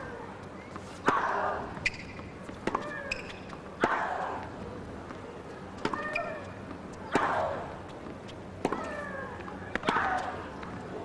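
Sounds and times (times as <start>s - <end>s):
sneakers squeaking on court: 1.8s - 3.6s, 5.7s - 7.2s.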